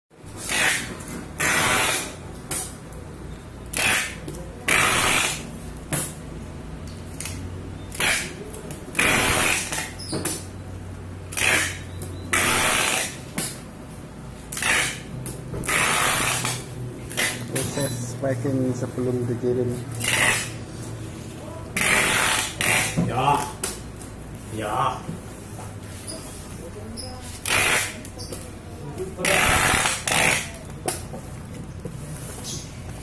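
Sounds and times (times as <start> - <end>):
packing tape screeching off roll: 0.4 - 2.2, 3.7 - 5.5, 7.2 - 8.4, 9.0 - 10.4, 11.3 - 13.2, 14.5 - 17.9, 20.0 - 20.6, 21.8 - 23.5, 27.4 - 28.2, 29.2 - 30.6.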